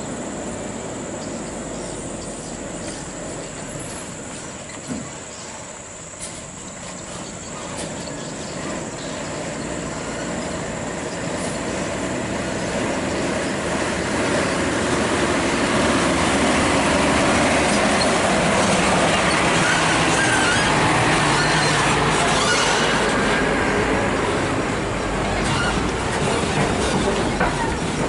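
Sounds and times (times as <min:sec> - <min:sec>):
truck engine: 0:00.0 - 0:28.0
heavy trailer rattling: 0:06.2 - 0:23.5, 0:24.6 - 0:28.0.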